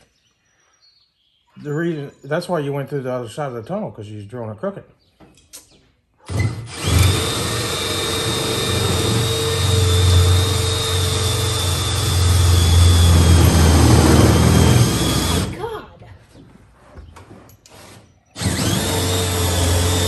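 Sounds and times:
power drill boring through metal: 0:06.3 - 0:15.6, 0:18.4 - 0:20.0.

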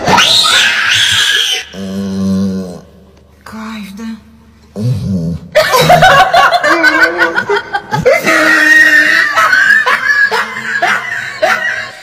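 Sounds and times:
high-pitched laughter: 0:05.6 - 0:12.0.

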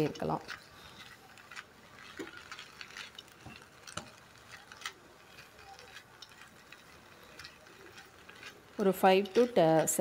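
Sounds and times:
leaves sauteing: 0:00.0 - 0:10.0
spatula scraping a pan: 0:00.0 - 0:10.0.

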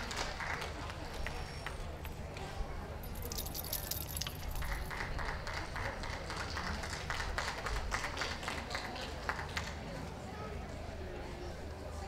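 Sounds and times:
spectators clapping lightly: 0:00.0 - 0:02.5, 0:03.3 - 0:10.0.

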